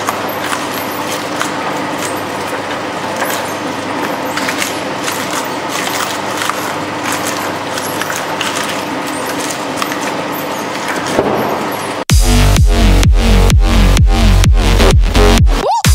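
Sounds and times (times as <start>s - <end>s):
crackling clicks of rind shredding: 0.0s - 11.2s
shredder motor hum: 0.0s - 15.9s
electronic dance music: 12.1s - 15.9s.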